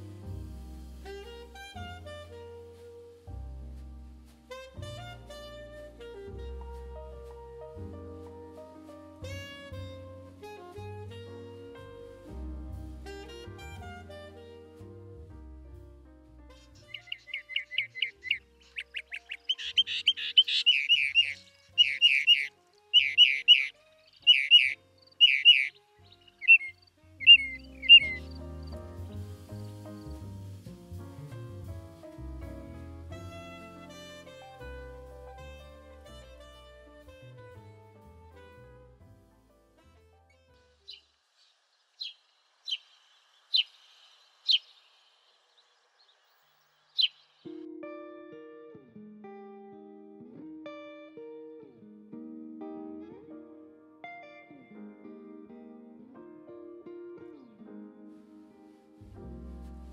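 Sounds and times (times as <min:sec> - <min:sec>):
faint hiss: 0:00.0 - 0:22.9, 0:23.7 - 0:40.0, 0:58.0 - 0:59.9
sparrow chirping: 0:16.8 - 0:29.9, 0:40.8 - 0:47.5
mockingbird singing: 0:16.9 - 0:28.8, 0:40.8 - 0:47.5.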